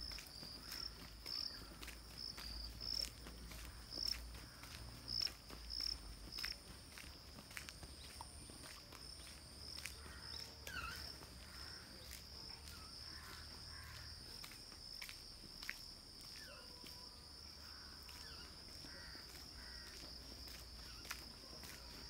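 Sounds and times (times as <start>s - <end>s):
footsteps on concrete: 0.0s - 22.0s
insects droning: 0.0s - 22.0s
falling bird calls: 9.8s - 14.1s, 16.3s - 21.9s.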